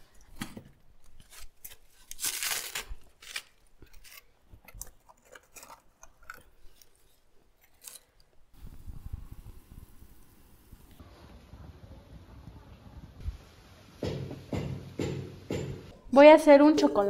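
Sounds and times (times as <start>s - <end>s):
bark snapping and crunching: 0.3s - 8.4s.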